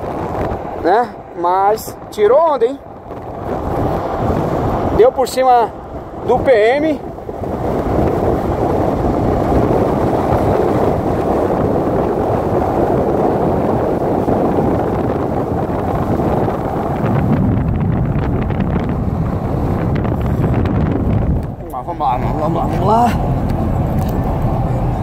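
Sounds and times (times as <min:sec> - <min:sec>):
car road noise: 0:00.0 - 0:25.0
wind buffeting microphone: 0:00.0 - 0:25.0.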